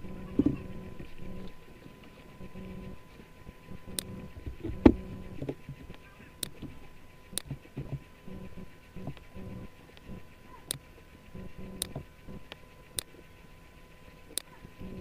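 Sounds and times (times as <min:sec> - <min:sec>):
low steady background noise: 0:00.0 - 0:15.0
computer mouse clicks: 0:03.7 - 0:13.2, 0:14.3 - 0:15.0.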